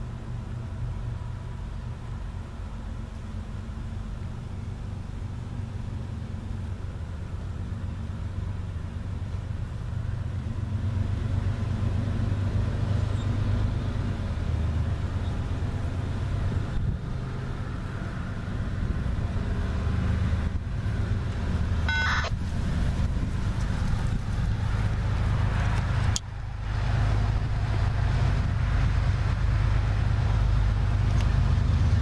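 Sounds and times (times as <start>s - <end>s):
diesel locomotive rumble: 0.0s - 32.0s
short high beep: 21.9s - 22.4s.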